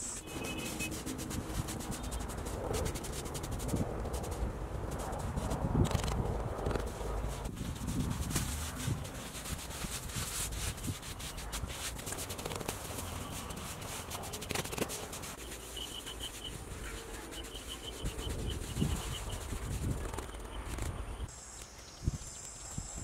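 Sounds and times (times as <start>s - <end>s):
hands scraping wet plaster: 6.7s - 20.2s
rapid high chirping: 15.4s - 22.8s.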